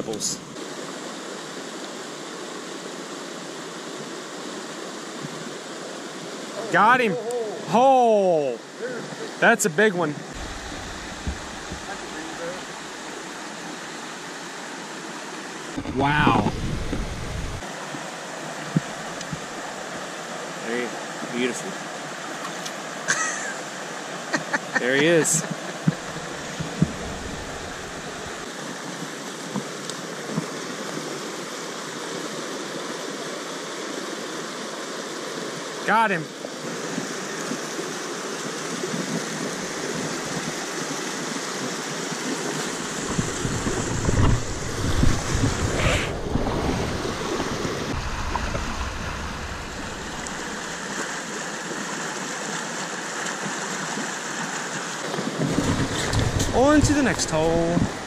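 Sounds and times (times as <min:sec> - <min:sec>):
stream rushing over rocks: 0:00.0 - 0:58.0
low rumble on microphone: 0:10.4 - 0:13.0, 0:15.8 - 0:17.6, 0:26.0 - 0:28.4, 0:43.0 - 0:50.8.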